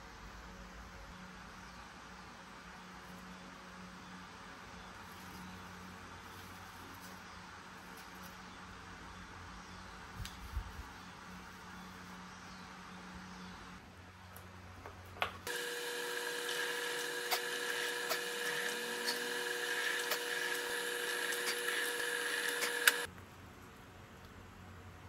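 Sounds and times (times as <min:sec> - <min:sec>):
bit drilling into wood clicks: 0:15.5 - 0:23.1
drill press motor whine: 0:15.5 - 0:23.1.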